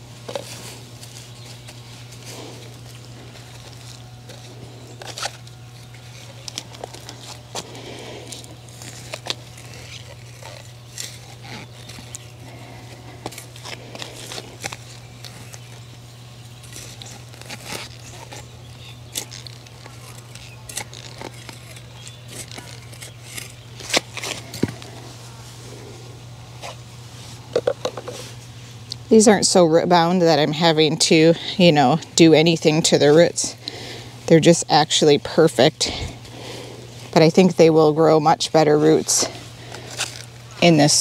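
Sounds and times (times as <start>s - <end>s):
steady low hum: 0.0s - 41.0s
hand tool digging in soil: 0.2s - 25.4s
clicks scrapes and crinkles: 0.2s - 25.5s, 38.8s - 41.0s.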